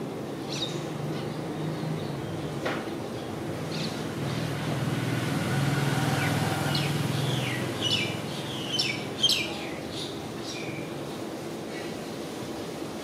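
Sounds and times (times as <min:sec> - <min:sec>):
passing traffic engine hum: 0:00.0 - 0:11.7
small birds chirping: 0:00.4 - 0:04.9, 0:06.0 - 0:11.0.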